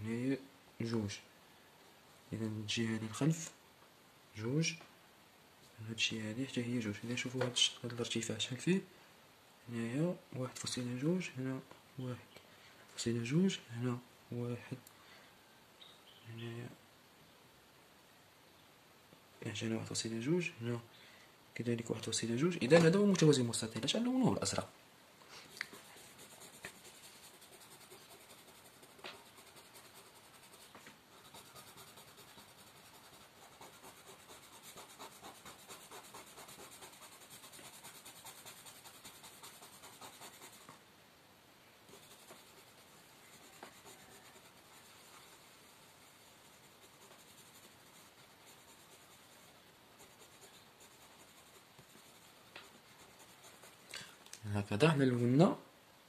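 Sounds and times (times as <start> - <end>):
pencil shading on paper: 25.7 - 40.7, 41.9 - 53.8.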